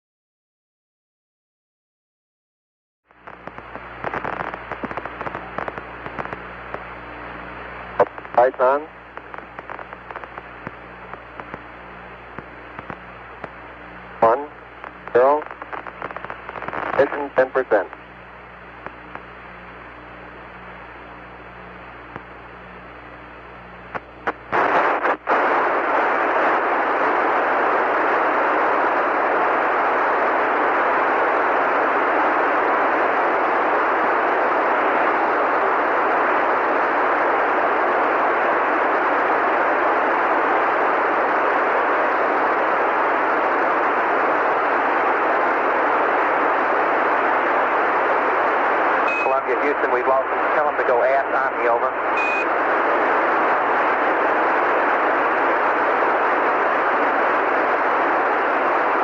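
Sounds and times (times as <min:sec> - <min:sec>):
low hum: 0:03.1 - 0:59.0
radio static hiss: 0:03.1 - 0:59.0
radio clicks: 0:03.2 - 0:19.9, 0:22.0 - 0:22.7, 0:23.6 - 0:27.9, 0:42.9 - 0:59.0.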